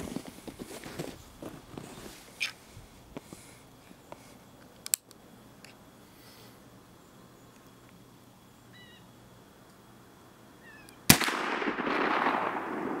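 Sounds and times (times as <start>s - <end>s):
rifle shot with echo: 11.1s - 13.0s.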